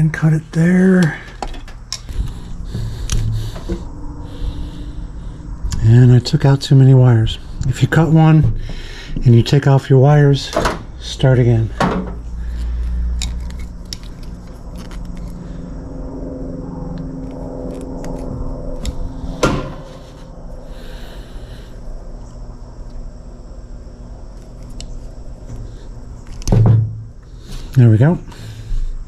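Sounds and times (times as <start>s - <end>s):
steady low hum: 0.0s - 29.0s
wire tool clicks and handling: 1.0s - 2.1s, 3.0s - 3.7s, 12.6s - 15.4s, 26.2s - 26.6s.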